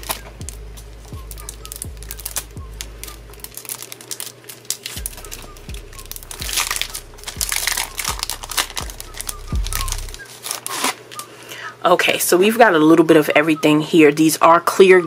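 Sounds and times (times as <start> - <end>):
plastic sleeve crinkling: 0.0 - 11.4
soft background music: 0.0 - 15.0.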